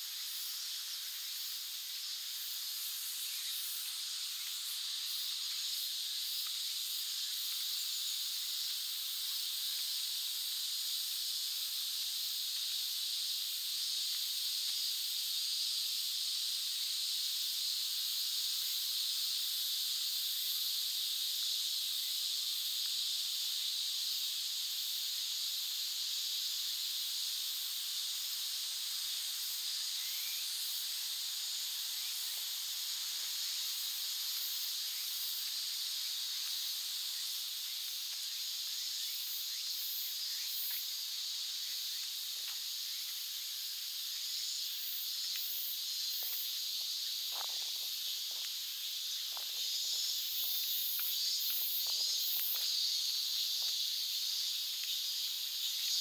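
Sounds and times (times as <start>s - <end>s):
cicada chorus buzzing: 0.0s - 56.0s
soft footsteps: 46.2s - 48.6s, 49.2s - 50.6s.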